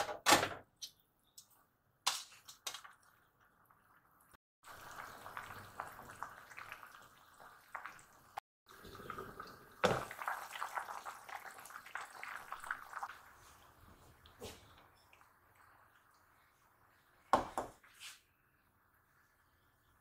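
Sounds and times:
liquid bubbling and popping: 4.6 - 13.4.

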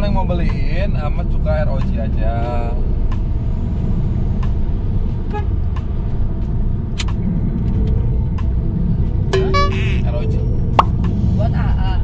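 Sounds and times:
car engine and tyre rumble: 0.0 - 12.0.

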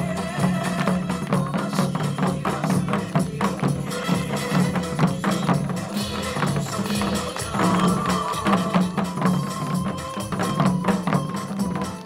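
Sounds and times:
drums struck in quick rhythm: 0.0 - 12.0
recorded backing track: 0.0 - 12.0.

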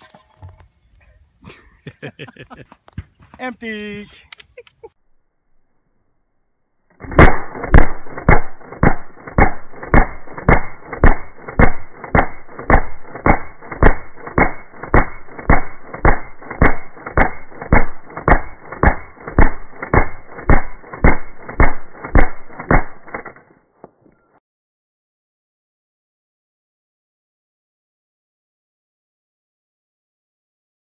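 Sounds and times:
suppressed gunshots: 7.0 - 23.4.

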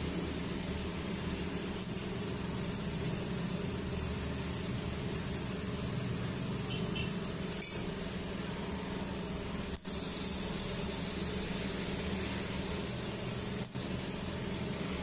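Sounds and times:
high-pitched welding arc whine: 0.0 - 15.0
low machine hum: 0.0 - 15.0.

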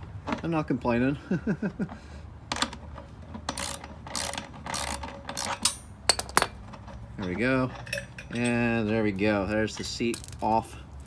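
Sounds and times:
ratchet wrench clicking: 3.4 - 6.5.

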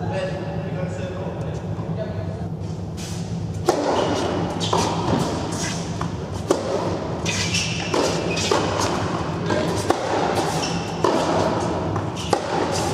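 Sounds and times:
racket striking tennis ball: 3.6 - 12.9
tennis ball bouncing: 3.6 - 12.9.

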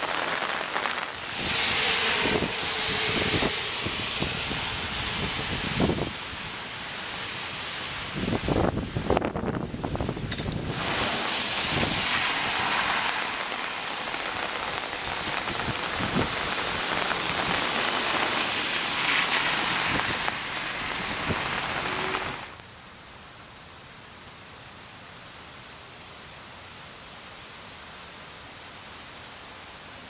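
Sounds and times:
rain splashing on wet asphalt: 0.0 - 23.6.

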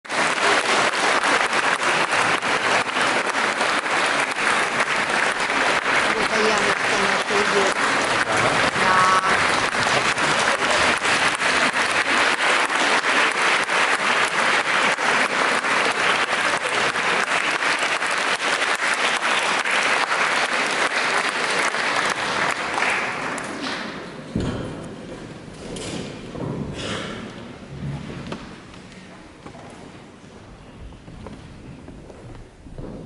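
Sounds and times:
audience applauding: 0.0 - 24.1
thump: 24.3 - 24.9.

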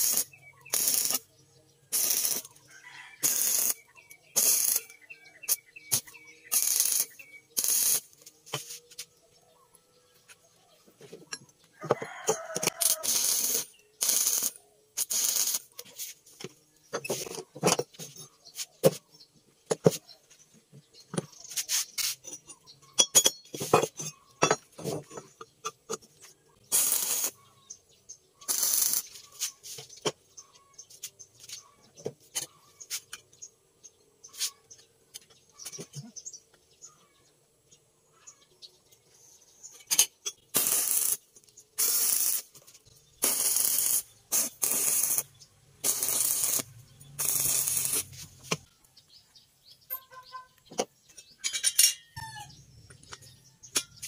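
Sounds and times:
metal pipes clinking on wood: 22.2 - 26.0, 49.9 - 52.2.

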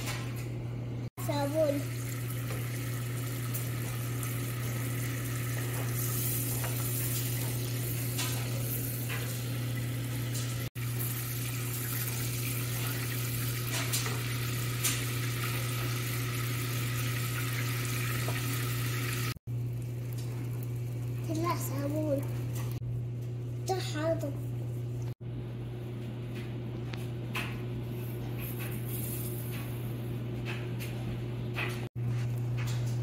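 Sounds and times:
butter sizzling in a saucepan: 1.8 - 21.8.

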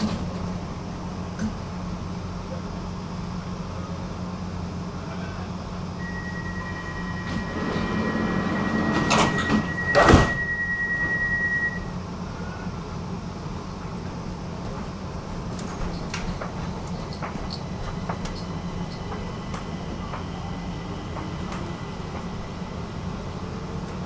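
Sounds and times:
train carriage hum: 0.0 - 24.0
high warning tone: 6.0 - 12.0
sliding doors shutting thud: 7.1 - 11.3.

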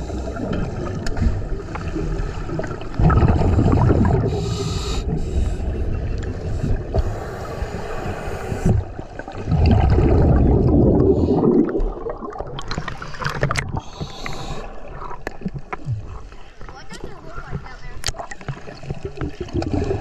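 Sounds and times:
underwater water sloshing: 0.0 - 20.0
bubbles clicking and crackling: 0.4 - 4.4, 9.1 - 20.0.

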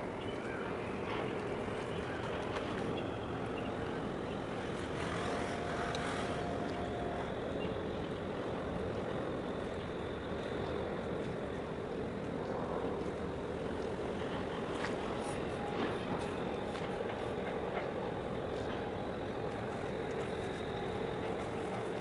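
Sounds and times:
ship engine rumble: 0.0 - 22.0.

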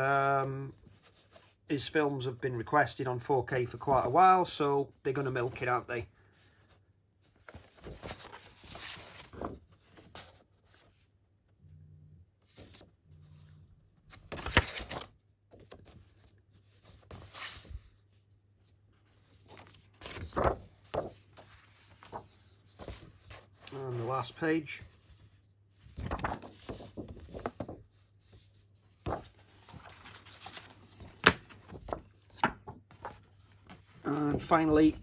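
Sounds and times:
paper rustling: 5.1 - 11.1, 12.4 - 35.0
pages turning: 7.2 - 11.1, 12.4 - 18.0, 18.6 - 35.0.

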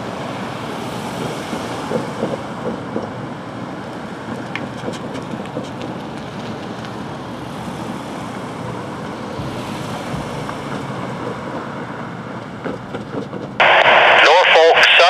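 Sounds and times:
cars driving over crossing: 0.0 - 13.7.

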